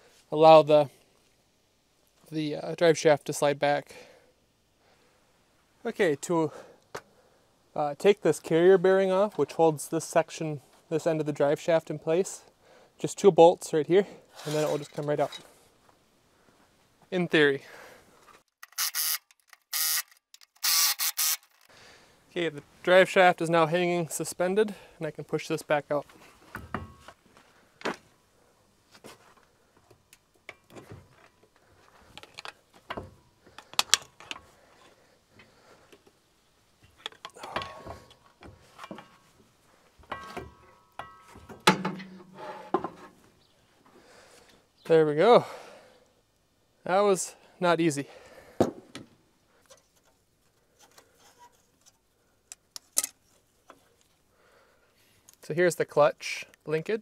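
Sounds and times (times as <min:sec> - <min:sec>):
tools and parts clicking and knocking: 0:18.6 - 0:21.7, 0:32.1 - 0:36.2, 0:36.8 - 0:39.2, 0:40.0 - 0:43.1, 0:50.8 - 0:53.8
metallic knocks and clanks: 0:40.0 - 0:43.1.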